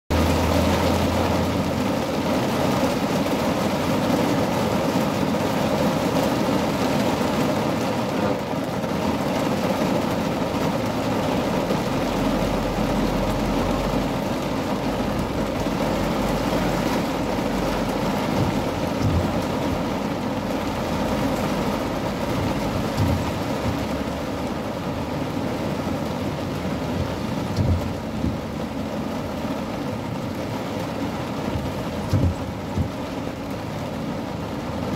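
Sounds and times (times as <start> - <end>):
heavy rain on car roof: 0.1 - 34.9.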